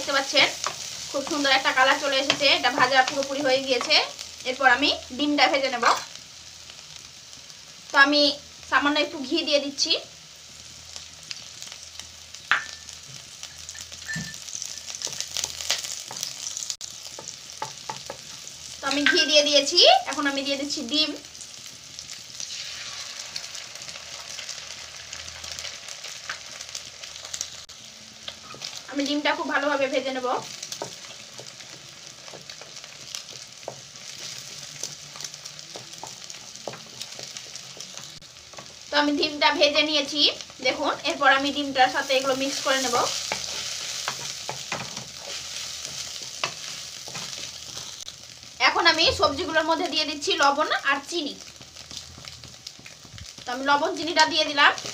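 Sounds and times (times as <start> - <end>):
vegetables sizzling in a wok: 0.0 - 54.9
wooden spatula tapping and scraping: 17.1 - 19.4, 30.5 - 38.8, 42.5 - 47.9.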